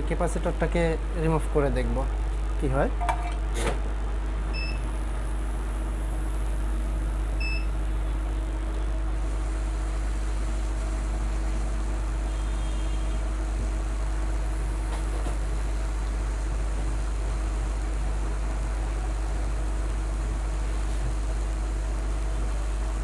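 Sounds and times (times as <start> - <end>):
hot air station blowing: 9.0 - 23.0.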